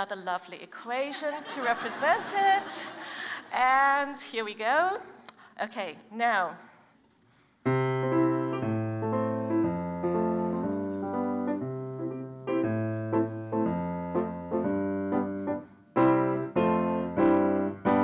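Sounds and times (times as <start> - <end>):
grand piano playing a tune: 7.7 - 18.0.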